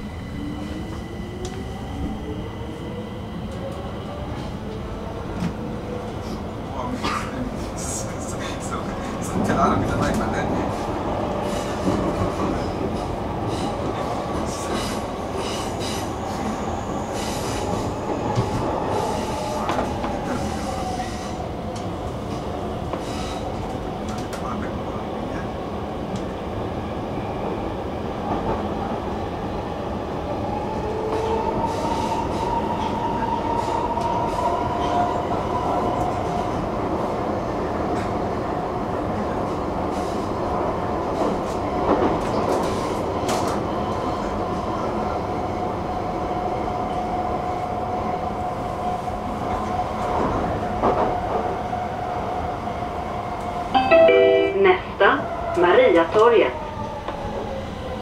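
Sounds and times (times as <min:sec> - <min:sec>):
wavering train whine: 0:00.0 - 0:06.4, 0:53.7 - 0:58.0
metro train rumble in tunnel: 0:00.0 - 0:58.0.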